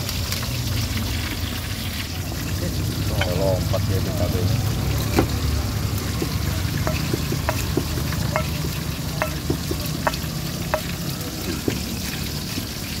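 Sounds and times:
pestle wet scraping and squelching: 5.7s - 13.0s
stone clinking on ceramic: 6.8s - 11.0s.

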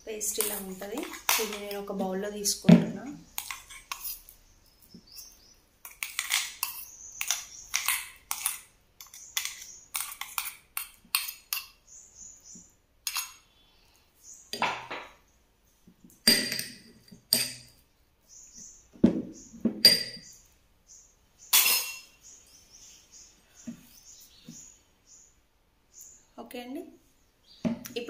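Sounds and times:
spoon scraping steel jar: 3.4s - 4.3s, 5.8s - 11.7s, 13.1s - 13.4s, 21.5s - 22.1s
spoon clinking on glass bowl: 21.5s - 22.1s.

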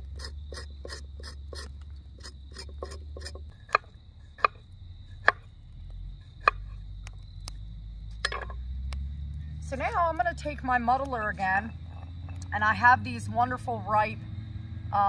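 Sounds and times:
knife scraping root skin: 0.0s - 5.4s.

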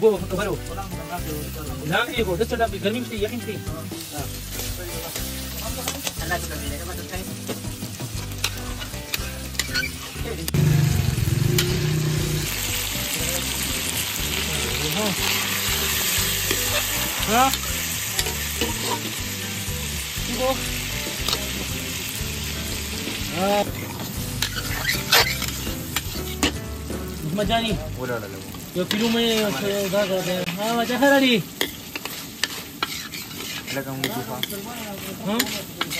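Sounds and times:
food sizzling in a pan: 0.0s - 35.9s
utensils scraping and clinking pan: 8.2s - 10.3s, 14.3s - 19.2s, 23.1s - 26.6s, 28.9s - 35.9s.

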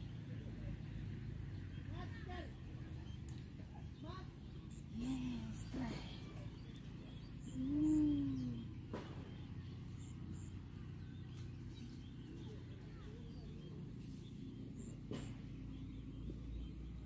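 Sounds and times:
low rising and falling call: 4.9s - 9.4s.

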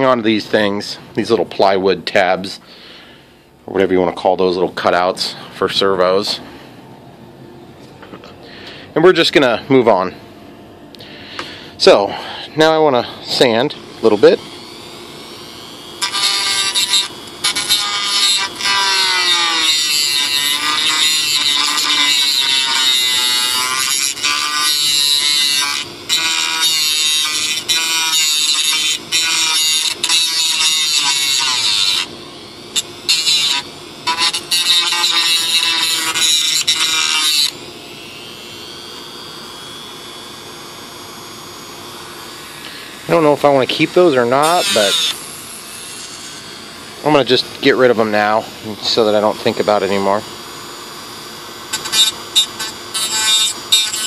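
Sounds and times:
rotary tool sanding wood: 13.2s - 40.6s, 41.3s - 50.1s, 51.7s - 54.0s.

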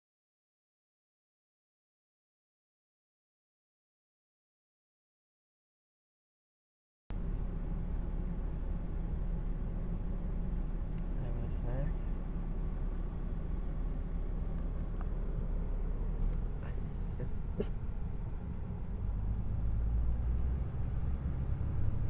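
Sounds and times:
vehicle engine rumble in cabin: 7.1s - 22.0s.

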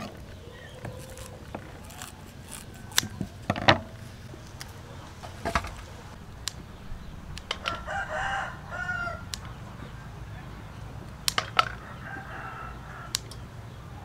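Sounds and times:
rooster crowing: 0.0s - 3.4s, 7.0s - 10.9s, 11.5s - 14.0s
scissors snipping onion stalks: 0.0s - 4.8s, 9.2s - 9.6s.

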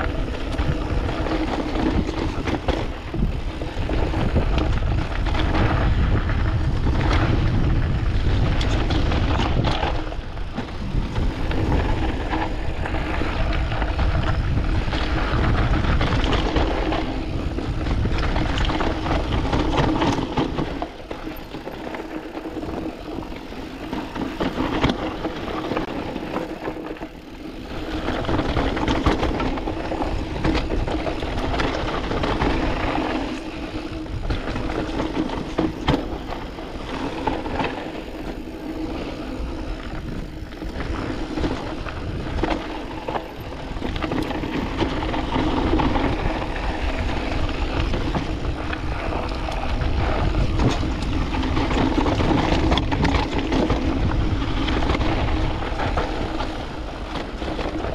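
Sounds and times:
bike rattling over rocks: 0.0s - 57.9s
bike tyres crunching over dirt: 0.0s - 57.9s
wind rumble on microphone: 0.0s - 57.9s.

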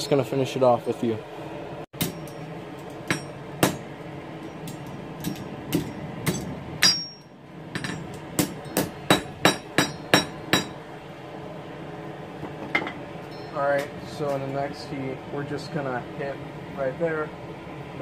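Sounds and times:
hammer striking steel on anvil: 2.0s - 10.8s, 12.8s - 14.0s.

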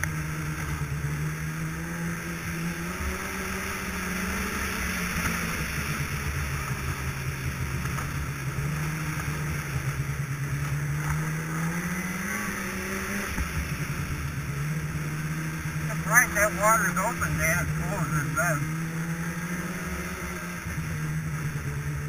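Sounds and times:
snowmobile engine running: 0.0s - 22.0s.

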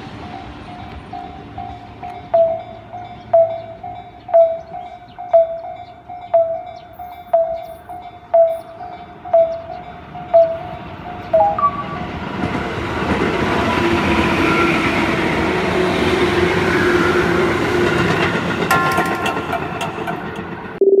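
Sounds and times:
electric train passing: 0.0s - 20.8s
level crossing bell ringing: 0.3s - 12.2s.

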